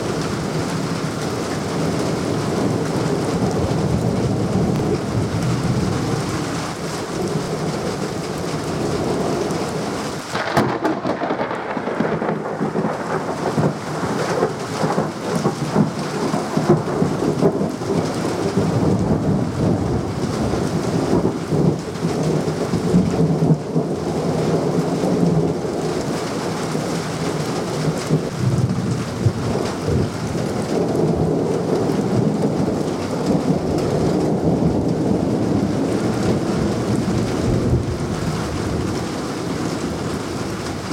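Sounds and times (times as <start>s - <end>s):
rolling thunder: 0.0s - 26.6s, 27.8s - 40.9s
heavy rain falling: 0.0s - 40.9s
sharp thunderclap: 10.3s - 20.1s.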